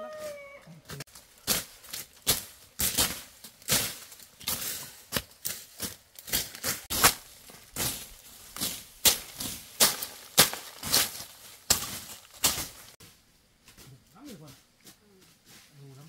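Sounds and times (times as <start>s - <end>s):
blade chopping undergrowth: 1.0s - 13.0s.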